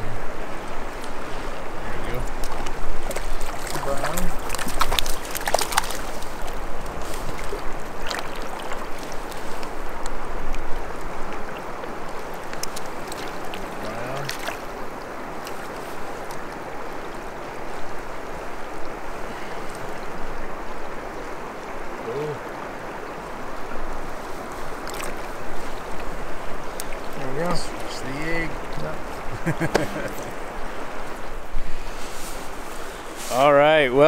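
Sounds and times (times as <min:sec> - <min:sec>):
river current rushing: 0:00.0 - 0:34.0
fish splashing in a net: 0:02.3 - 0:09.8, 0:12.3 - 0:16.3, 0:24.6 - 0:26.0.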